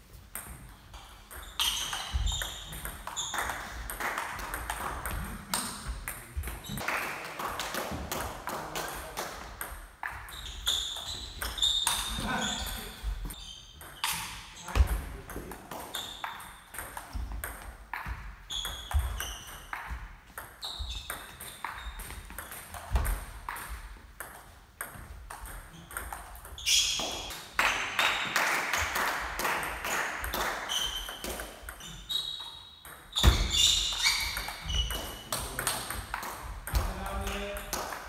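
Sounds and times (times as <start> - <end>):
table tennis balls clicking: 0.4 - 6.8.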